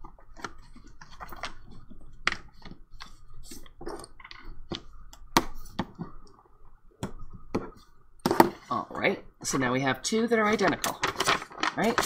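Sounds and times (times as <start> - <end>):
paper rustling and scraping: 10.4 - 12.0.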